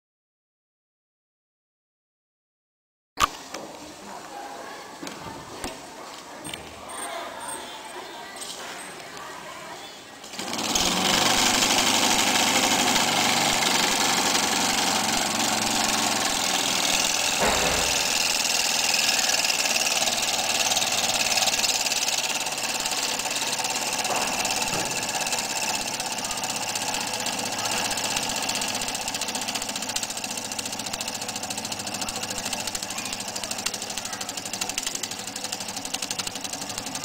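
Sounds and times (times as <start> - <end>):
model steam engine running: 10.3 - 37.0.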